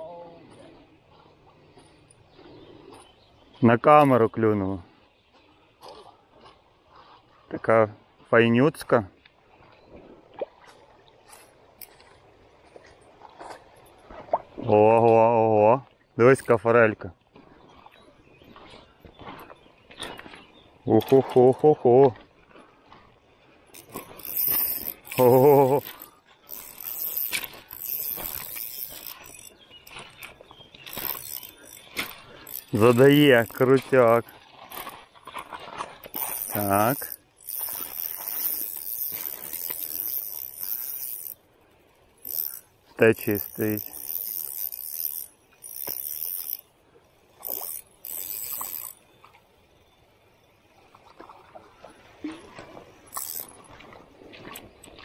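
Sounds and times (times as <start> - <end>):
faint small ticks: 10.4 - 14.2, 23.7 - 51.5, 53.1 - 55.0
fishing rod and reel clicks: 11.3 - 12.2, 23.7 - 50.8, 53.0 - 53.9.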